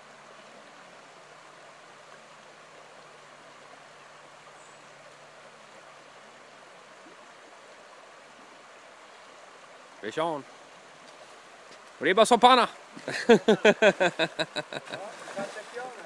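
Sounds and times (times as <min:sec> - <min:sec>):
river rushing over rocks: 0:08.3 - 0:16.0.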